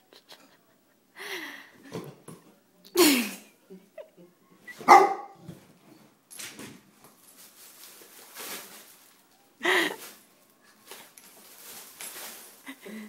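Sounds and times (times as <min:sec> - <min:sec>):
plastic bag crinkling: 0:07.0 - 0:13.0.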